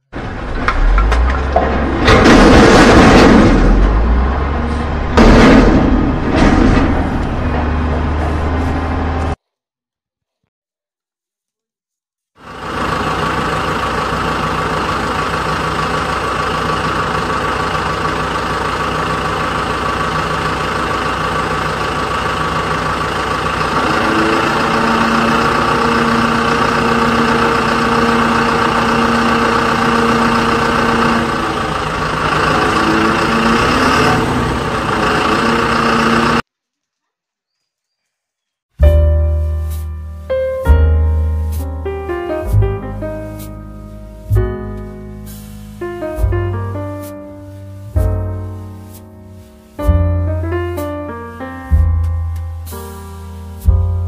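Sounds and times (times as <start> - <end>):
truck engine idling: 12.4 - 36.5.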